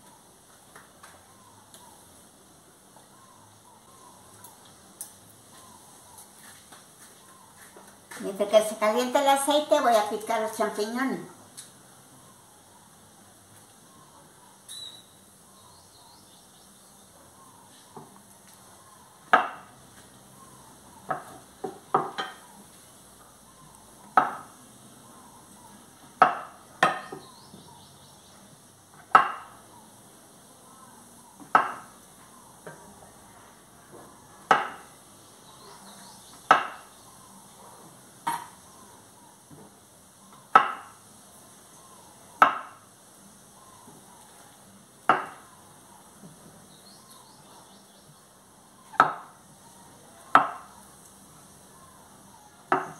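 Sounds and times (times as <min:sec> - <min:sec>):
knife tapping wooden cutting board: 0:21.1 - 0:22.4, 0:24.2 - 0:24.5.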